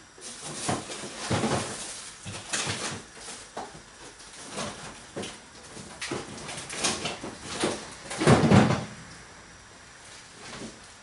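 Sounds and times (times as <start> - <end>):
rummaging knocks and clatters: 0.2 - 9.0.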